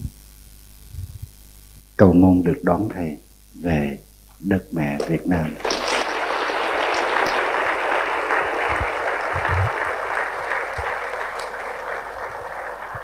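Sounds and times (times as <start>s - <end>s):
large audience applauding: 5.0s - 13.0s.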